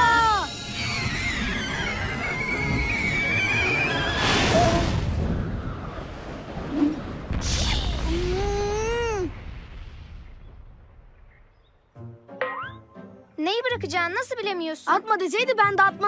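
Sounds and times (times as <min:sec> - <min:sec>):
cartoon wavering whistle: 0:00.0 - 0:04.5.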